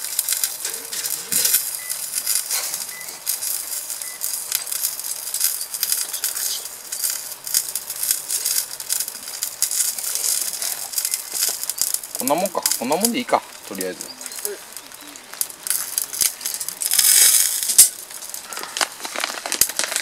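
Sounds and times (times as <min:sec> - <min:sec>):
food sizzling on a grill: 0:00.0 - 0:20.0.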